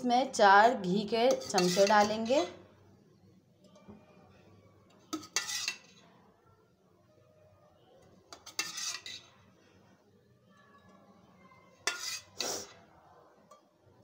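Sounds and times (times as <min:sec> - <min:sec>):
metal spoon scraping cooking pot: 0:00.8 - 0:02.6, 0:04.9 - 0:06.1, 0:08.3 - 0:09.5, 0:11.8 - 0:12.8.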